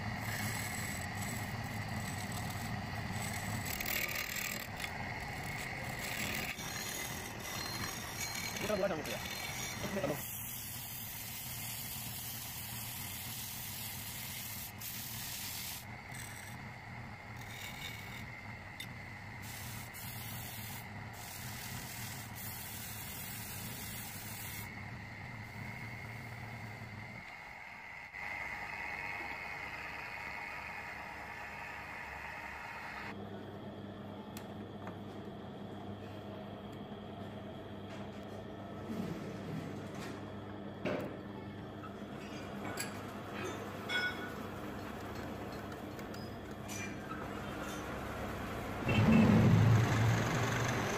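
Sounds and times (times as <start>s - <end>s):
wood lathe running: 0.0s - 10.4s, 15.8s - 22.3s, 49.0s - 50.9s.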